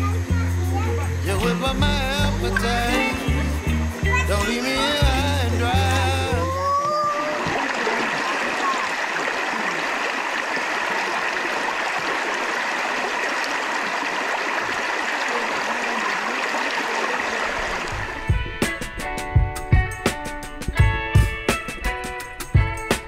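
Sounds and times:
water rushing over rocks: 0:05.8 - 0:18.6.

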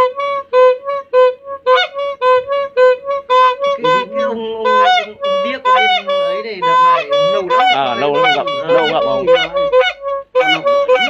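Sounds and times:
reedy horn toots: 0:00.0 - 0:11.0.

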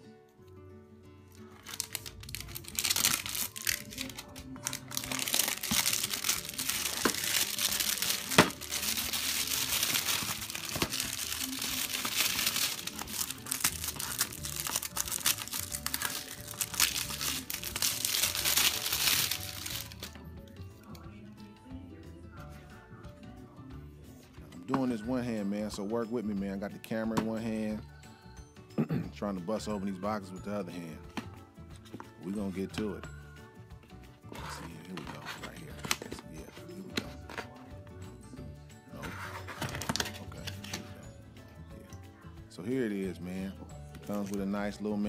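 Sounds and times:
plastic wrapping crinkling and tearing: 0:01.5 - 0:20.2.

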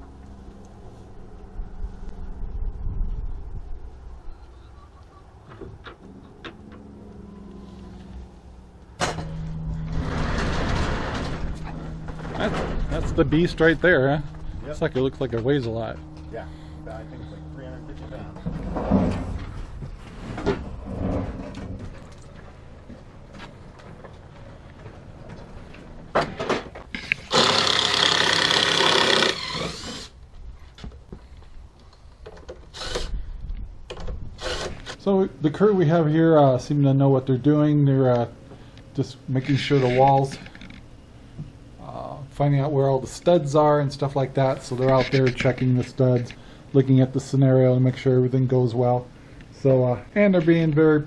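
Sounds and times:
truck engine running: 0:06.1 - 0:20.0
cordless drill spinning: 0:27.0 - 0:30.2, 0:32.7 - 0:33.1, 0:34.4 - 0:34.9.

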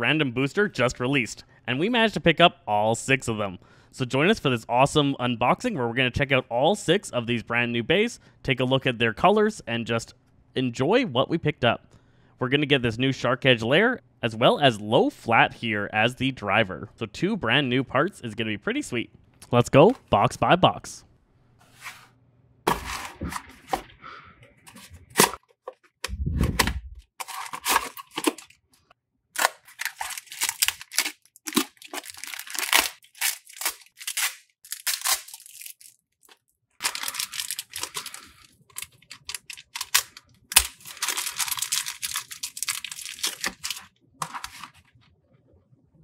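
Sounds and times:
plastic bag crinkling and tearing: 0:27.2 - 0:28.6, 0:29.4 - 0:44.7.

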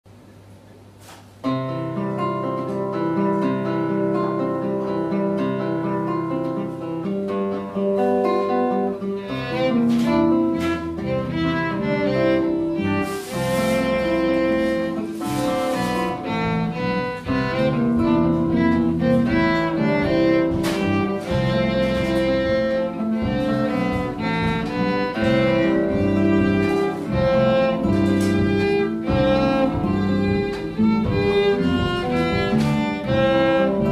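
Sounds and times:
acoustic guitar: 0:00.2 - 0:33.9
electric bass: 0:10.6 - 0:33.9
drums: 0:12.9 - 0:33.9.

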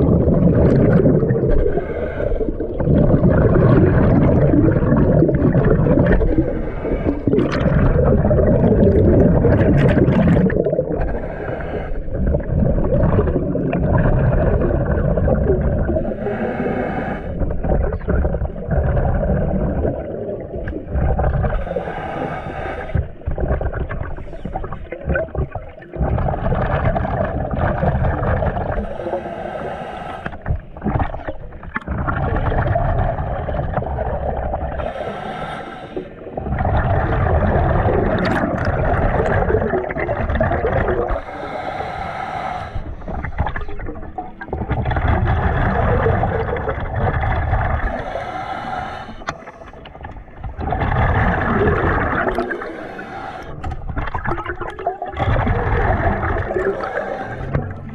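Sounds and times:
exhaled bubbles underwater: 0:00.0 - 0:57.9
regulator inhale hiss: 0:01.6 - 0:02.6, 0:06.3 - 0:07.4, 0:11.0 - 0:12.2, 0:16.0 - 0:17.5, 0:21.6 - 0:23.2, 0:28.7 - 0:30.8, 0:34.8 - 0:36.4, 0:41.1 - 0:43.5, 0:47.9 - 0:49.9, 0:52.4 - 0:53.8, 0:56.6 - 0:57.9.

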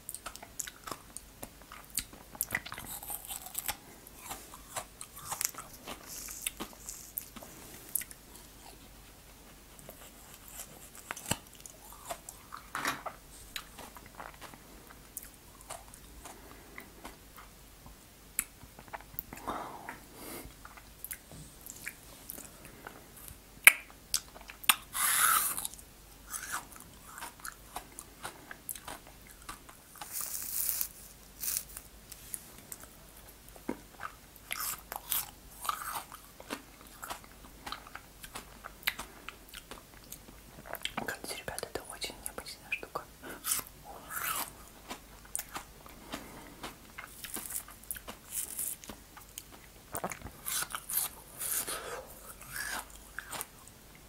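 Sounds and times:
ice crunching while chewed: 0:00.1 - 0:08.8, 0:43.3 - 0:53.7.

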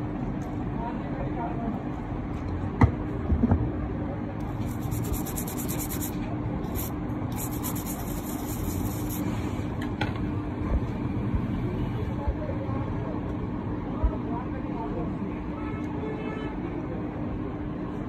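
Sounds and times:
background hum and rumble: 0:00.0 - 0:16.0
brush scrubbing circuit board: 0:04.5 - 0:09.3.

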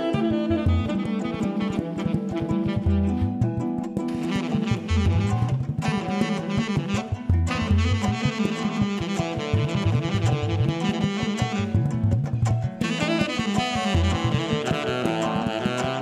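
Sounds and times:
saxophone melody: 0:00.0 - 0:16.0
bass: 0:11.6 - 0:12.8.

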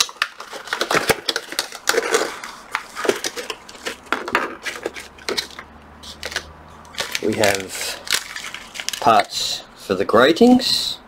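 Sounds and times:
plastic packaging rustling: 0:00.0 - 0:09.3.

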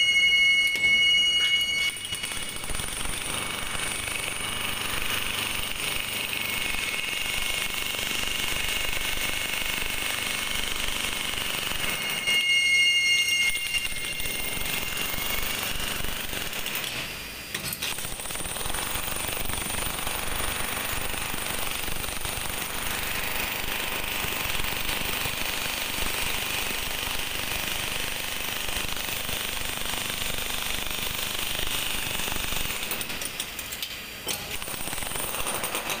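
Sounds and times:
loud ringing tone: 0:00.0 - 0:02.9, 0:11.6 - 0:15.7
demolition hammer chiseling concrete: 0:01.8 - 0:33.4, 0:34.3 - 0:36.0.

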